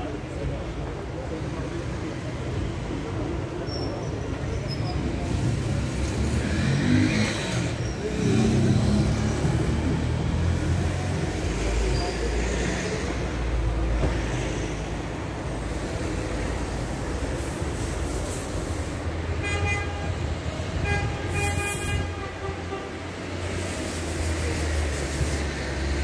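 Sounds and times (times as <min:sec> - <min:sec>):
heavy low engine: 0:00.0 - 0:19.4
car engines accelerating: 0:04.3 - 0:17.8.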